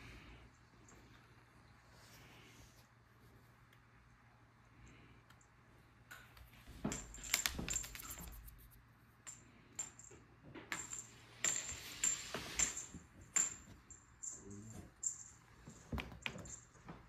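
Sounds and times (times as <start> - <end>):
small bell jingling: 9.3 - 16.9.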